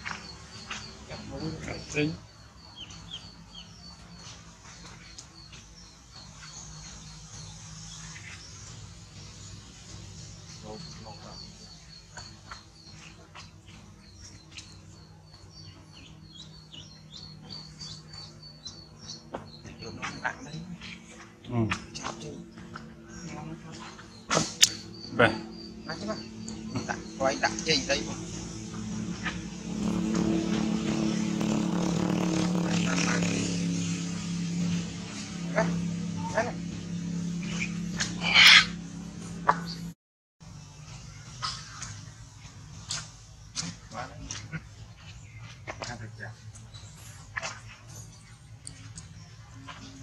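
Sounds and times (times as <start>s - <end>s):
small engine running: 4.9s - 41.0s.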